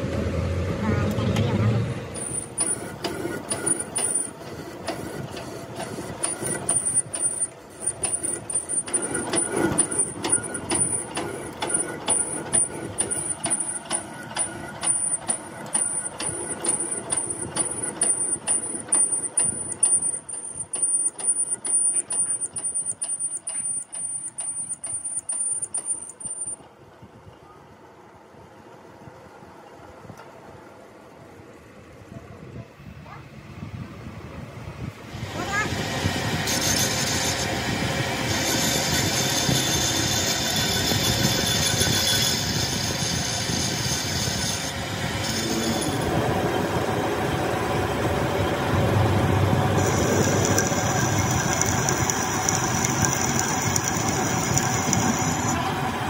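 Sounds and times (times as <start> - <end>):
machine whining with regular knock: 1.0 - 26.8, 35.5 - 55.6.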